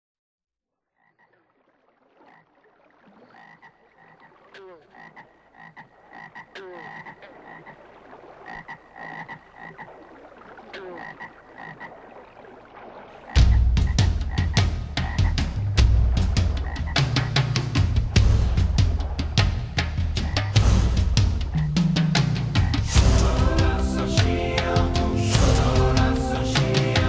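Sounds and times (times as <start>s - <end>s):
frog croaks: 0.8s - 20.6s, 21.4s - 21.9s, 22.5s - 23.0s
high-pitched frog calling: 0.9s - 15.5s, 16.4s - 17.4s, 19.8s - 20.6s, 21.5s - 21.8s
falling frog call: 0.9s - 24.4s.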